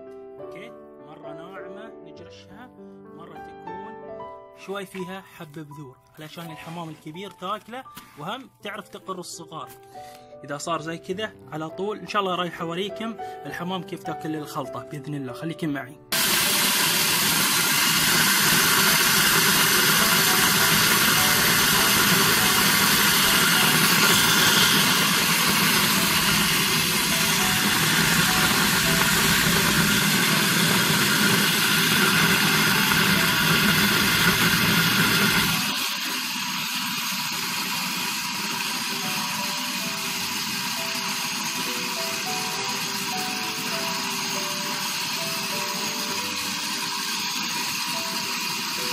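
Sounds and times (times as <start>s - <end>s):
electric grinder milling grain: 16.1s - 48.9s.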